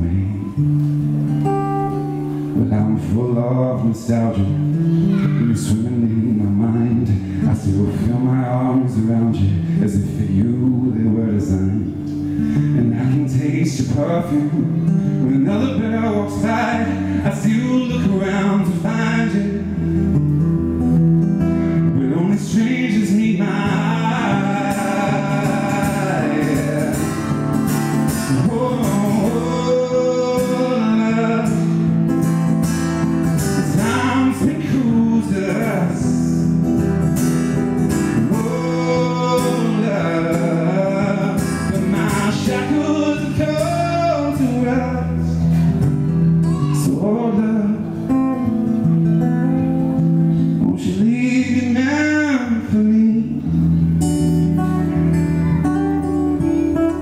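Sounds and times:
man singing: 0:00.0 - 0:00.8, 0:02.4 - 0:20.2, 0:21.8 - 0:57.0
acoustic guitar strumming: 0:00.0 - 0:57.0.

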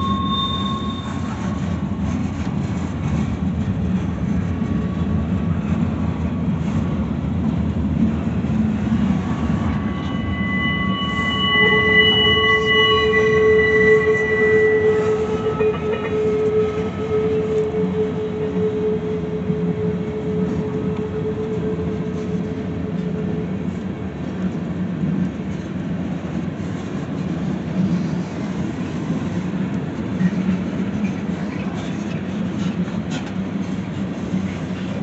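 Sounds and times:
wheel flanges squealing: 0:00.0 - 0:02.2, 0:07.9 - 0:29.6
steel wheels rumbling on rail: 0:00.0 - 0:35.0.

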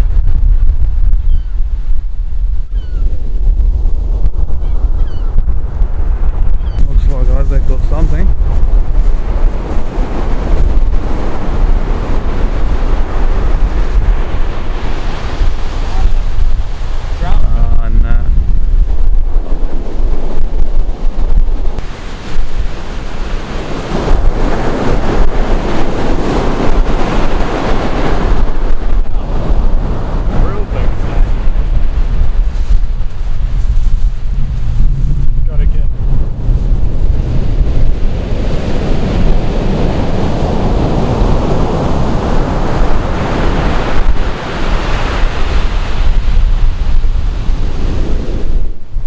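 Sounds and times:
surf on a beach: 0:00.0 - 0:49.0
wind buffeting microphone: 0:00.0 - 0:49.0.

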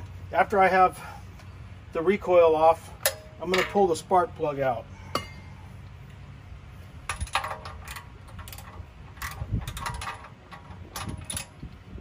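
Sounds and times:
wrench clinking on metal: 0:07.1 - 0:11.6.

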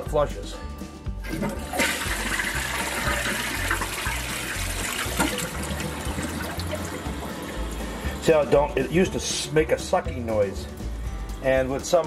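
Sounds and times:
toilet flushing: 0:01.2 - 0:08.7.

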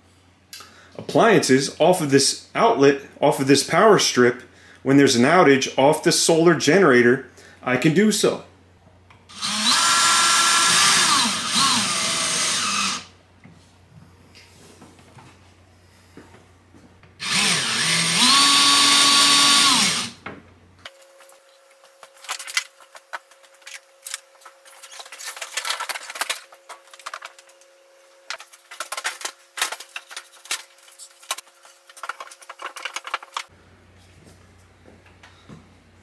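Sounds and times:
power drill whining: 0:09.3 - 0:13.1, 0:17.2 - 0:20.2
handling clicks and rustles: 0:20.9 - 0:27.7, 0:28.3 - 0:33.5.

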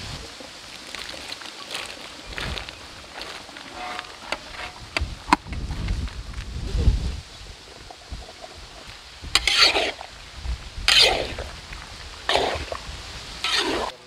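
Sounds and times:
metal spatula scraping pan: 0:03.7 - 0:04.8, 0:09.4 - 0:10.1, 0:10.9 - 0:11.4, 0:13.4 - 0:14.0.

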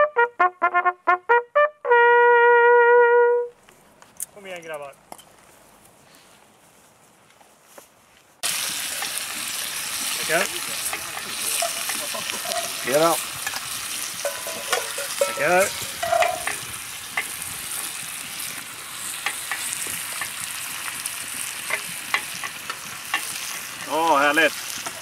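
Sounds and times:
steady hiss: 0:08.4 - 0:25.0
metal ladle and spoons clinking: 0:10.8 - 0:16.6.

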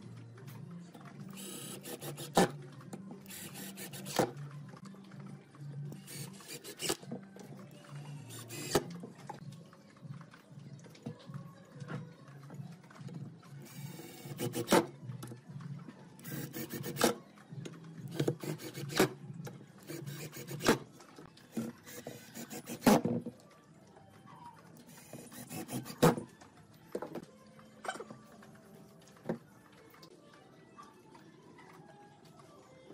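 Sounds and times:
cordless drill driving screws: 0:03.3 - 0:04.3.

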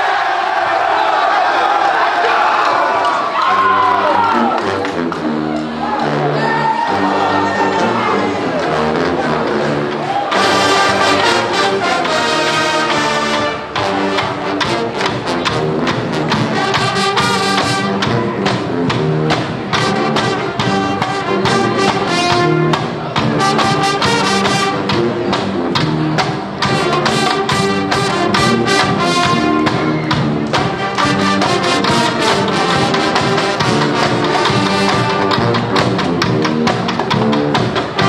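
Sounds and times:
brass instruments: 0:00.0 - 0:38.0
woodwinds: 0:02.3 - 0:38.0
snare drums: 0:08.5 - 0:38.0
bass drum: 0:13.7 - 0:38.0.

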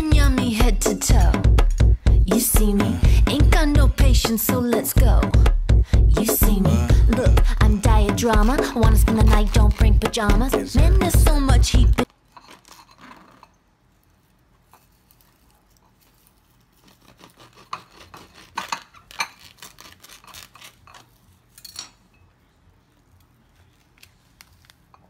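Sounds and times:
knife cutting hard fruit shell: 0:16.8 - 0:21.2.

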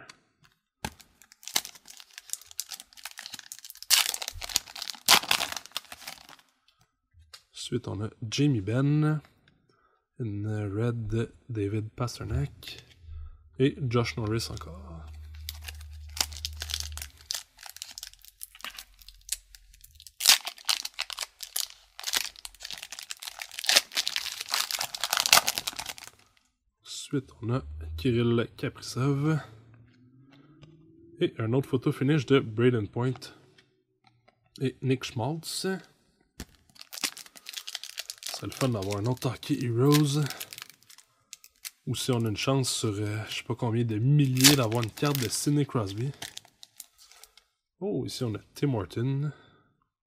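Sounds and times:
wrapper crinkling: 0:00.8 - 0:06.4, 0:15.2 - 0:26.4, 0:36.4 - 0:42.2, 0:44.2 - 0:47.4
wrapper tearing: 0:00.8 - 0:06.4, 0:15.2 - 0:26.3, 0:36.4 - 0:42.2, 0:44.2 - 0:47.4.

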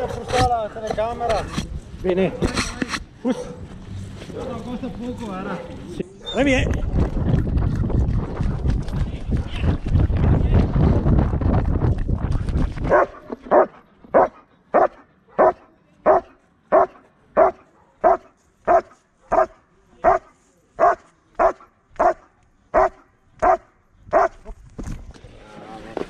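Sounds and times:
dog barking rhythmically: 0:12.9 - 0:20.2, 0:20.8 - 0:24.4.

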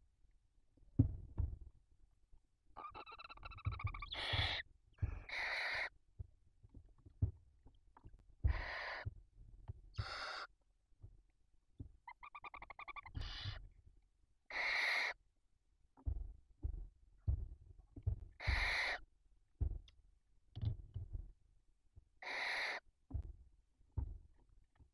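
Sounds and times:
owlets chirruping: 0:02.8 - 0:05.9, 0:08.4 - 0:09.1, 0:10.0 - 0:10.5, 0:12.1 - 0:13.6, 0:18.4 - 0:19.0
soft bumps of birds shifting: 0:16.0 - 0:21.4.

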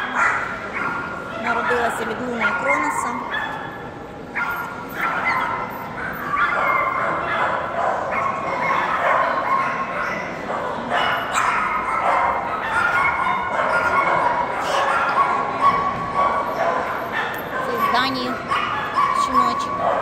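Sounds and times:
many dogs barking and yipping: 0:00.0 - 0:20.0.

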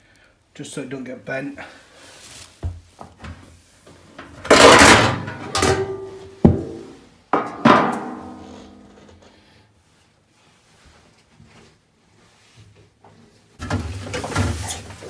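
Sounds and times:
metal knocks ringing: 0:05.5 - 0:09.0.

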